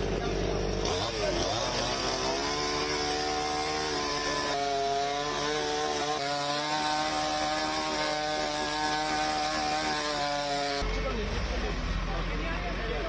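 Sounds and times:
engine running at high revs: 0.0s - 13.0s.

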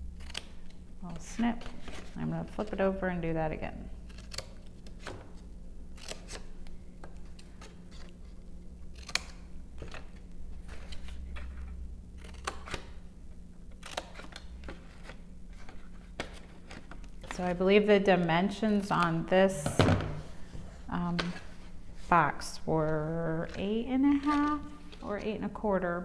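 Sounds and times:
faint steady hum: 0.0s - 26.0s
scissors snipping card: 23.4s - 24.6s.

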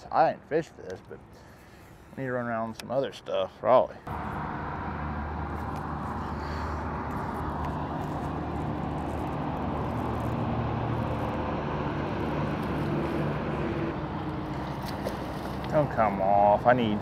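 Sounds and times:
boat engine running: 4.1s - 17.0s.

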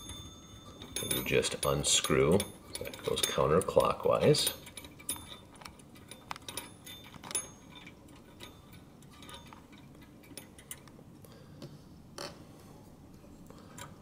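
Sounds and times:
small metallic clicks and scrapes: 0.0s - 11.0s.

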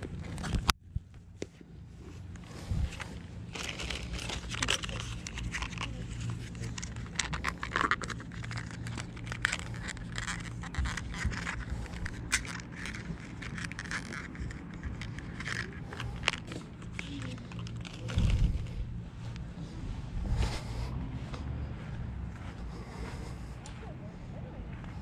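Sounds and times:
steady low hum: 0.0s - 25.0s
plastic bags crinkling: 3.4s - 18.5s.

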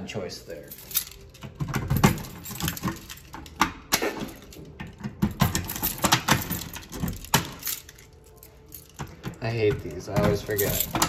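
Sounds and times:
keys clicking and knocking: 0.6s - 11.0s
key turning in a lock: 0.8s - 3.7s.

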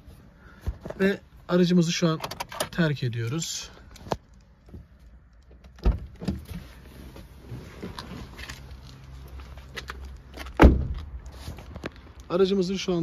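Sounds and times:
car door shutting: 10.5s - 11.1s.

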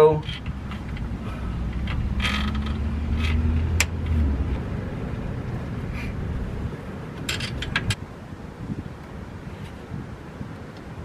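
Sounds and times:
low rumble: 0.2s - 9.0s.

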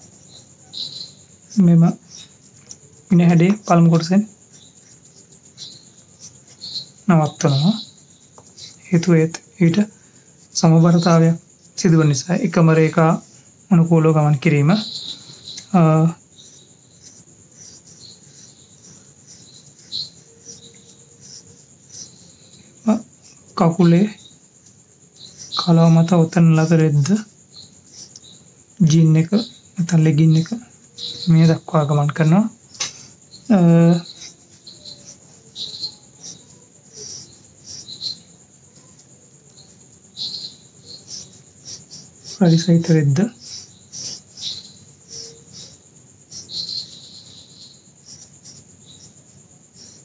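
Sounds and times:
pencil scratching on paper: 0.0s - 9.1s, 14.6s - 28.4s, 33.4s - 50.0s
insect chirping: 0.0s - 50.0s.

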